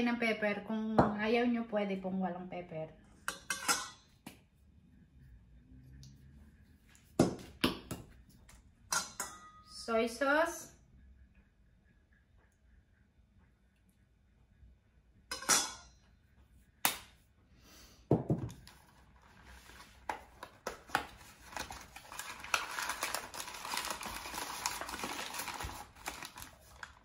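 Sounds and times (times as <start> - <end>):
spoon clinking on steel bowl: 15.3 - 15.9.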